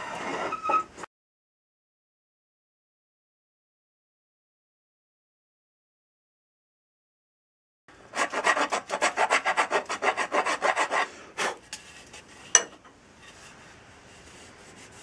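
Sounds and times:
file scraping wood: 8.1 - 12.6.

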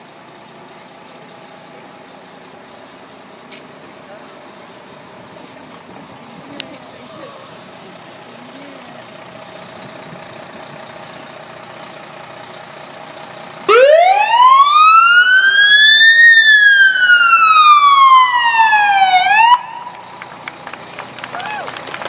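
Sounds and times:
fire truck siren wailing: 9.4 - 21.9.

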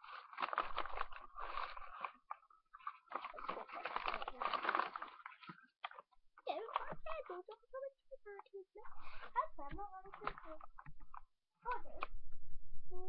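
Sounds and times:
crackly crunchy rustling: 0.0 - 12.2.

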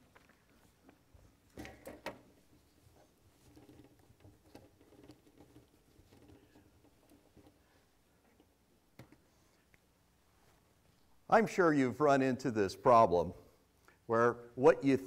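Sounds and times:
soft rustling: 9.2 - 11.2.

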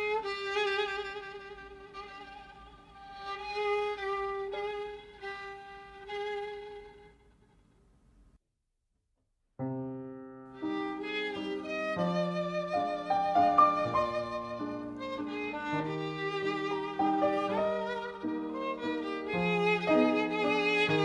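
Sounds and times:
piano: 0.0 - 6.7, 9.6 - 21.0
violin: 0.0 - 7.6, 10.5 - 21.0.

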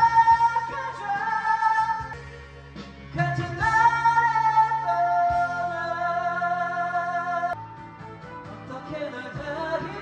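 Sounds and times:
man singing into microphone: 0.0 - 2.1, 3.1 - 7.6, 8.7 - 10.0
karaoke backing track: 0.0 - 10.0.

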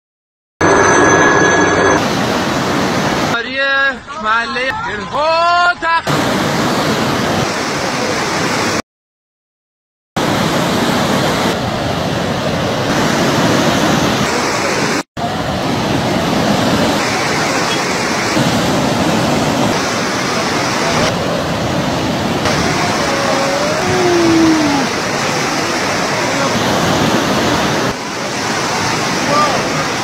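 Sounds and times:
floodwater rushing: 2.0 - 3.4, 6.1 - 8.8, 10.2 - 30.0.

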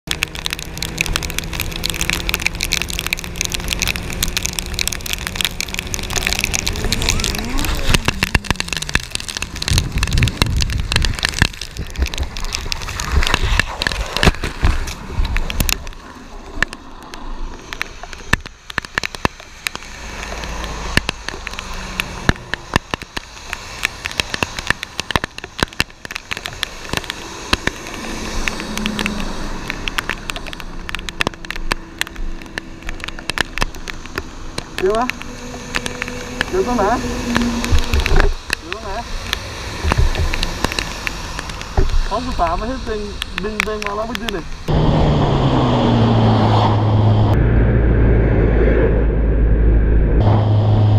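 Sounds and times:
raindrops ticking on camera: 0.0 - 44.7
heavy rain: 0.0 - 47.4
bike scraping on asphalt: 0.6 - 18.1.

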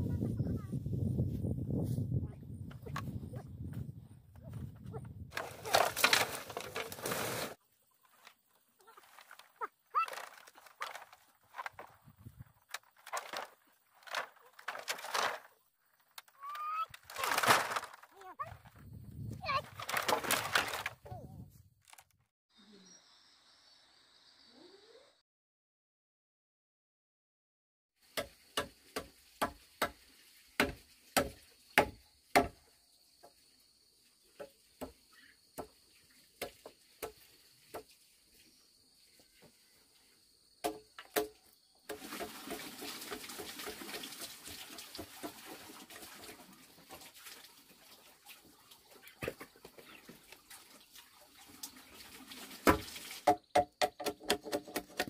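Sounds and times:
steady rustling noise: 9.0 - 22.1
hammer knocking on wood: 53.3 - 55.0.

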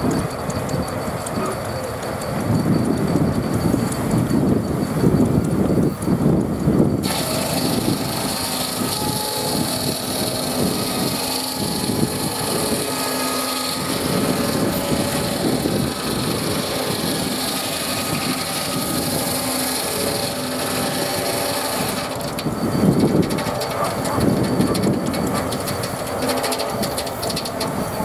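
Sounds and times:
hum of running blade and belt: 0.0 - 28.0
circular saw cutting log: 6.8 - 28.0.

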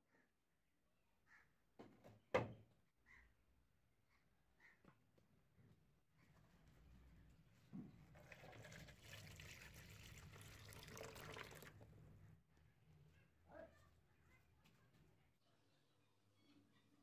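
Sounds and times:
liquid pouring and splashing: 8.0 - 11.9.

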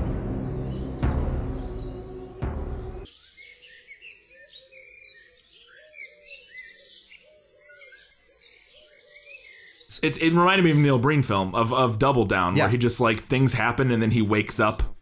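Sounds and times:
music playing: 0.0 - 3.1
lower repeated bird calls: 0.0 - 11.0
high bird chirps and trills: 0.1 - 9.9.

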